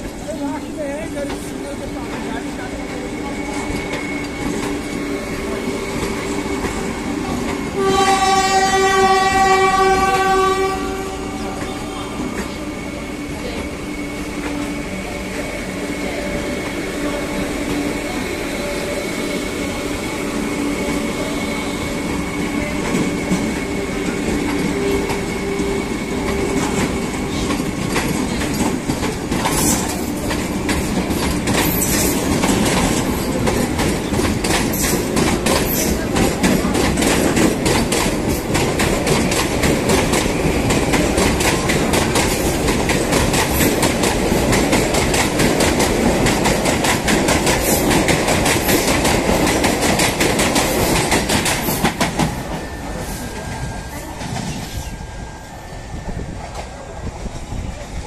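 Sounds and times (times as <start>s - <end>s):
electric train whine: 0.0s - 58.0s
train rolling noise: 0.0s - 58.0s
train horn: 7.6s - 12.4s
wheels clicking over rail joints: 24.1s - 52.6s.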